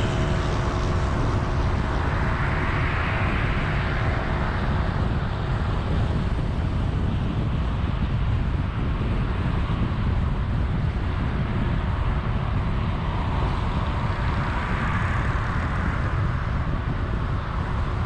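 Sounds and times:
road and tyre rumble: 0.0s - 18.0s
wind noise: 0.0s - 18.0s.

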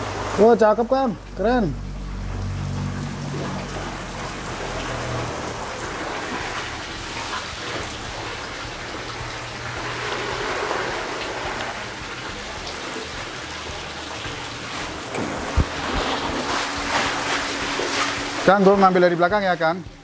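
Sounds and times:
rushing hiss of steam and water: 4.6s - 19.0s.

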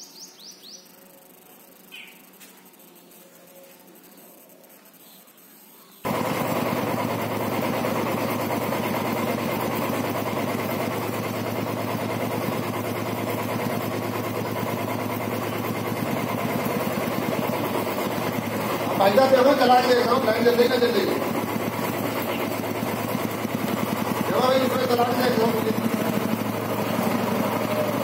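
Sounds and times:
motorcycle engine running: 6.0s - 28.0s.

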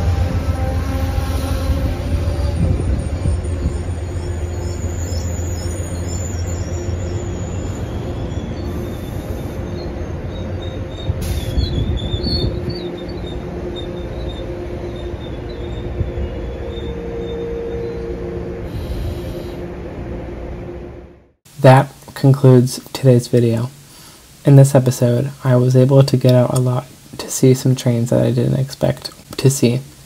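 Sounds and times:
wheel squeal: 0.0s - 19.5s
train wheels rumbling on rail: 0.0s - 19.8s.

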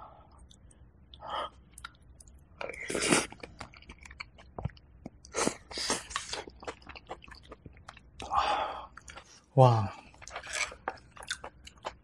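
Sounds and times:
wet chewing with clicks: 6.0s - 8.3s, 10.1s - 12.0s.

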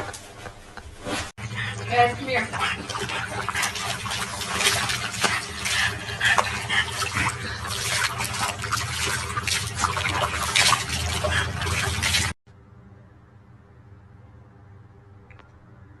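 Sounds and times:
water splashing in a plastic tub: 1.9s - 12.4s.

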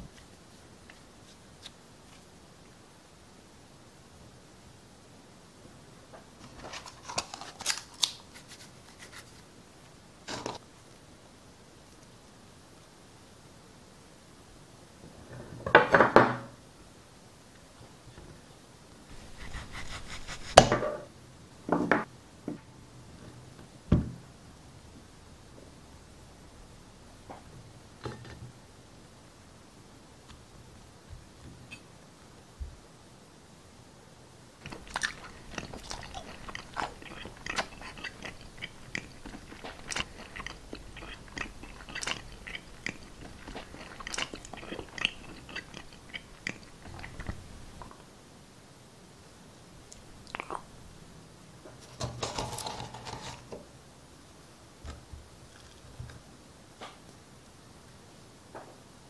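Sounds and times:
crunching and chewing: 6.4s - 9.3s, 34.6s - 48.0s
knife sawing through clay: 19.2s - 20.7s
mouth clicks: 49.9s - 50.7s.

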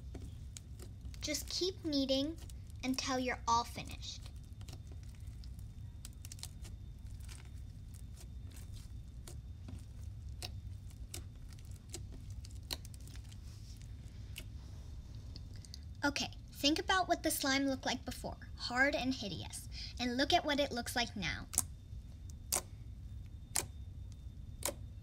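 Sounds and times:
slime crackling and popping: 0.0s - 14.6s, 21.4s - 22.8s
low steady hum: 0.0s - 25.0s.

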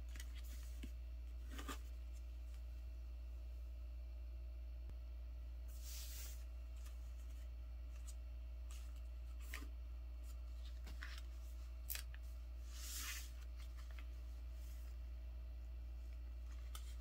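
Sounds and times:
steady low hum: 0.0s - 17.0s
paper rustling and scraping: 5.7s - 15.0s.

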